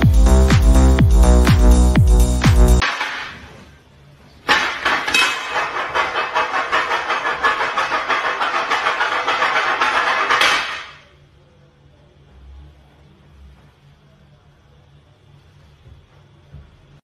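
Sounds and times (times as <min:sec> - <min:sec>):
bass-heavy electronic music: 0:00.0 - 0:02.8.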